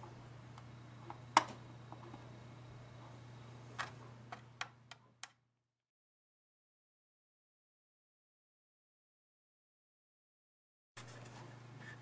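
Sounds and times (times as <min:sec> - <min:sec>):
low steady hum: 0:00.0 - 0:05.4.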